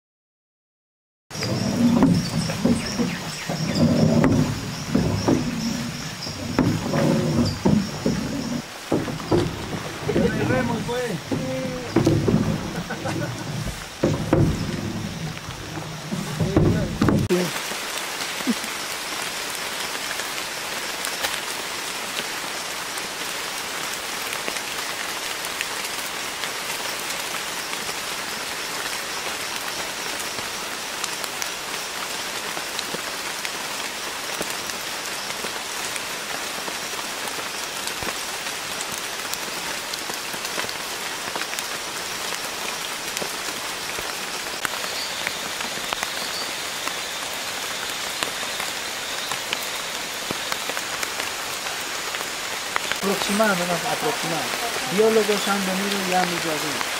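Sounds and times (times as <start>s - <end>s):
rain falling on leaves and water: 1.3s - 56.9s.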